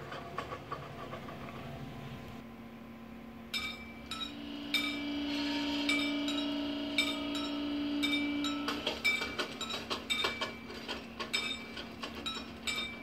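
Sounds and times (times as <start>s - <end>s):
sharp metallic clinks: 3.6s - 5.1s
small electric motor humming: 4.2s - 9.2s.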